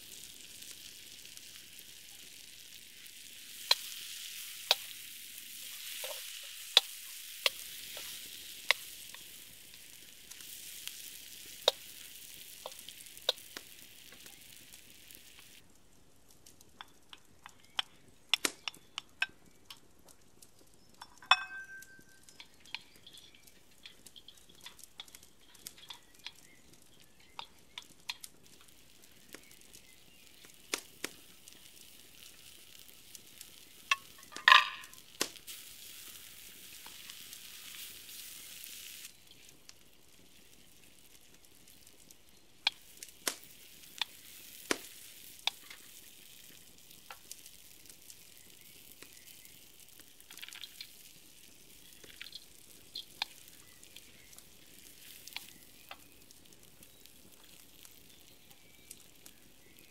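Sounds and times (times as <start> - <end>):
vegetables sizzling in a wok: 0.0 - 15.6, 20.7 - 59.9
spatula scraping and tapping pan: 3.6 - 14.4, 21.0 - 28.6, 33.9 - 35.1
ringing clink: 21.2 - 22.2.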